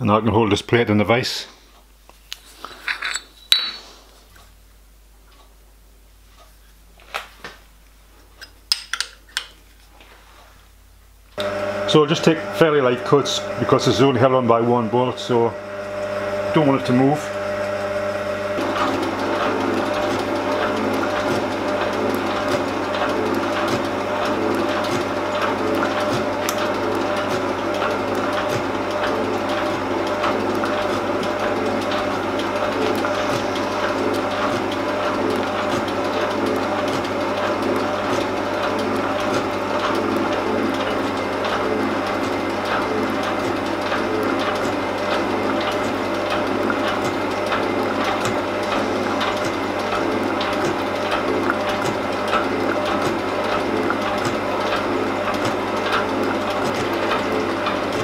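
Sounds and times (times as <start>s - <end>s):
metal shaping machine running: 2.8s - 3.8s, 11.4s - 58.0s
regular machine clicks: 18.6s - 58.0s.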